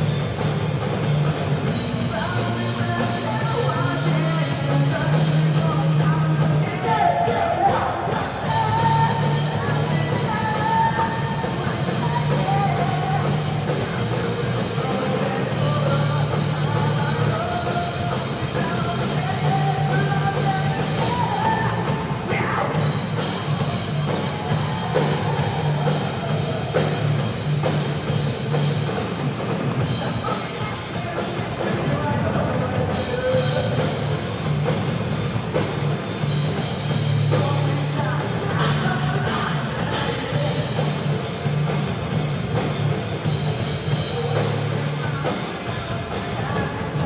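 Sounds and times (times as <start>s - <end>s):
bass guitar: 0.0s - 47.0s
drum kit: 0.0s - 47.0s
person singing: 1.7s - 27.7s, 37.2s - 41.2s, 43.9s - 47.0s.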